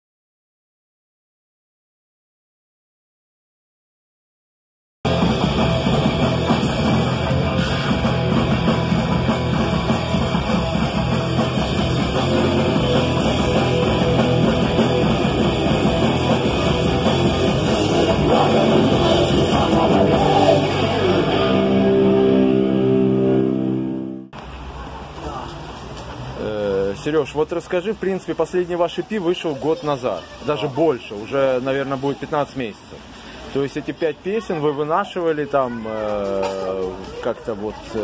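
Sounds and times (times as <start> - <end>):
punk band playing: 5.0 - 24.4.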